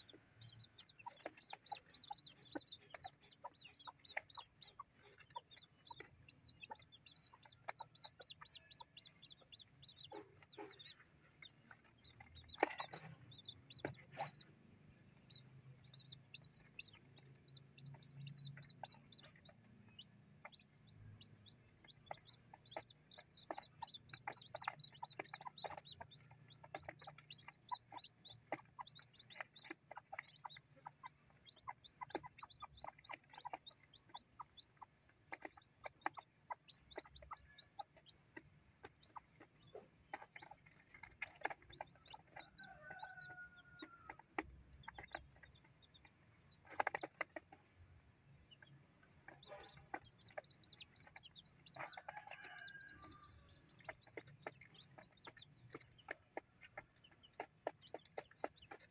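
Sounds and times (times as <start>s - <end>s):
chicks peeping: 0.0s - 58.9s
hen clucking: 0.0s - 58.9s
beaks tapping on cardboard: 38.3s - 45.5s, 49.4s - 58.9s.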